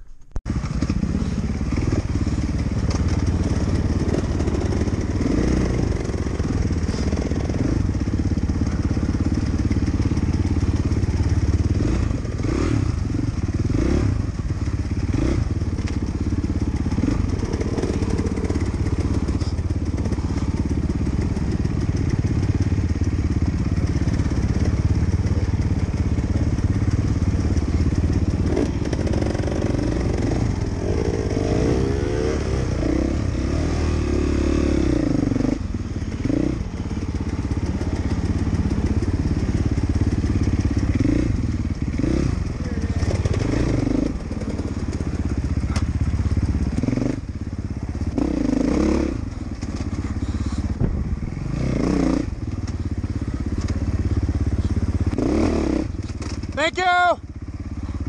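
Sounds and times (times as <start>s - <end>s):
dirt bike engine running: 0.0s - 58.0s
knocks from bike: 56.0s - 56.6s.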